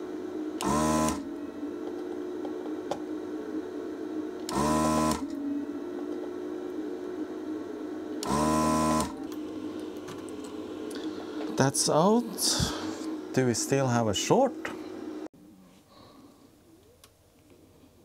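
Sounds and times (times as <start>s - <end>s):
desoldering vacuum pump: 0.2s - 15.3s.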